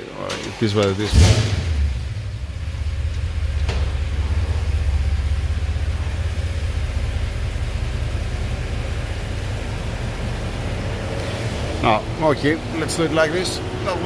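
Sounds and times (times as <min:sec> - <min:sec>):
vehicle engine idling: 0:00.4 - 0:14.0.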